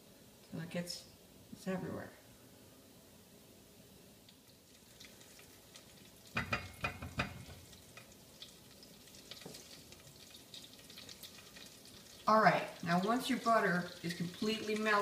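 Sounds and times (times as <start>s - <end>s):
butter crackling in a pot: 4.2s - 15.0s
spoon knocking on metal pot: 6.4s - 7.6s.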